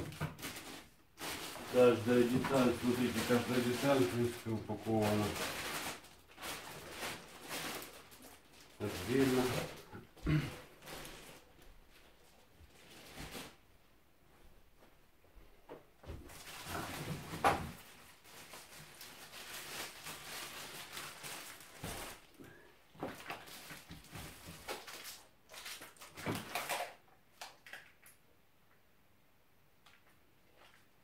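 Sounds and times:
wrapping material rustling: 0.0s - 10.0s, 10.7s - 13.7s, 16.2s - 22.4s, 23.1s - 26.9s.

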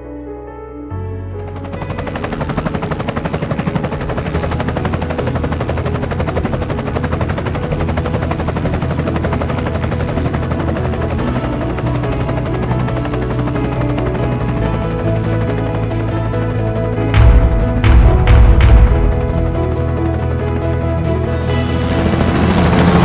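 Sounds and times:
helicopter rotor chopping: 1.4s - 23.0s.

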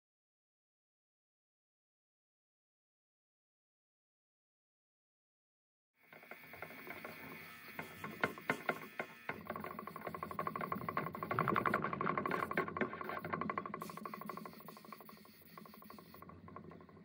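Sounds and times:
rapid ratchet-like mechanical clicking: 6.1s - 17.0s.

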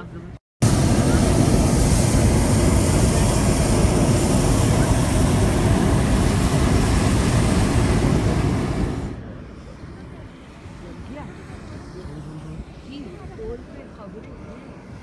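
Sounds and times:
propane burner blast: 0.6s - 10.7s.

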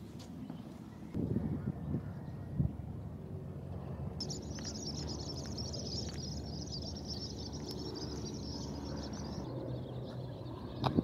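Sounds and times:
low background rumble: 1.1s - 11.0s
birds chattering: 4.2s - 11.0s.

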